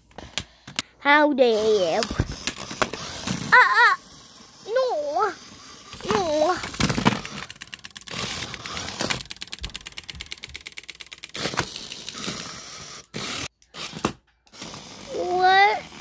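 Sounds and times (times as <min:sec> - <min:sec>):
toy robots scraping and clicking: 0:01.4 - 0:16.0
fast run of clicks: 0:06.2 - 0:12.3.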